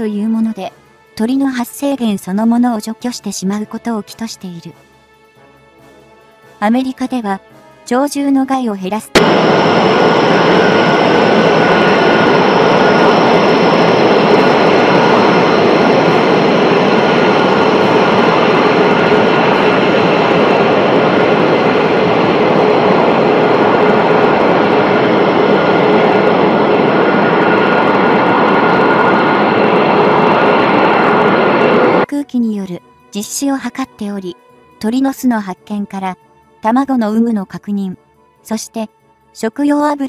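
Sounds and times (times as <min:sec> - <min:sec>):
jet engine running: 0:09.1 - 0:32.1.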